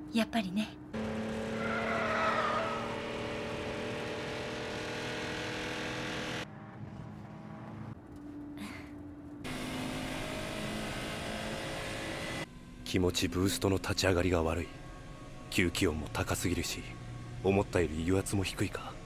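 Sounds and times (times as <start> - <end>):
car engine running at high speed: 0.9 - 8.3, 9.4 - 12.5.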